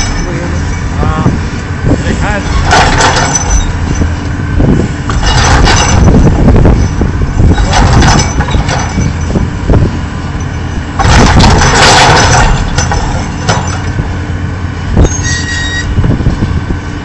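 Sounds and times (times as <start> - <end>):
excavator diesel engine rumbling: 0.0 - 17.0
cracking and falling rubble: 5.1 - 6.2, 7.5 - 9.2, 11.0 - 14.0.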